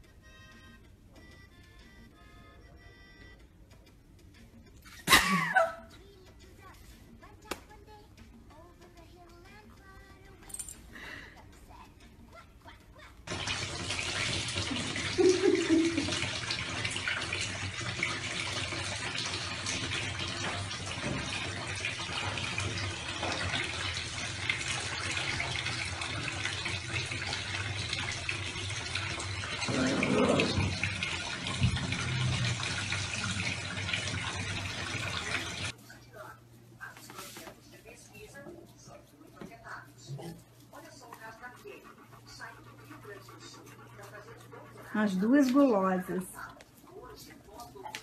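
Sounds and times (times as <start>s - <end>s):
tap water running into bathtub: 13.3s - 35.8s, 41.8s - 48.0s.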